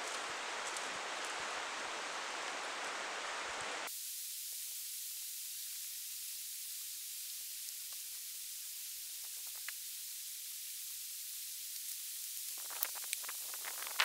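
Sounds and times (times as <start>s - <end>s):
river water rushing: 0.0s - 3.9s
high hiss: 0.0s - 14.0s
faint ticks: 9.2s - 9.8s, 11.7s - 14.0s.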